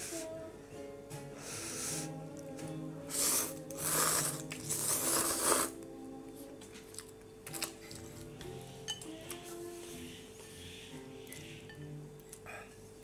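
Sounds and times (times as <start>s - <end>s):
person slurping noodles: 3.1s - 5.8s.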